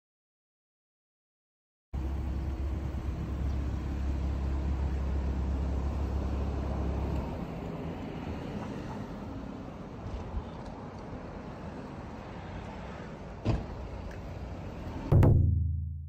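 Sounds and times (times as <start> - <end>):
road traffic rumble: 2.0 - 15.3.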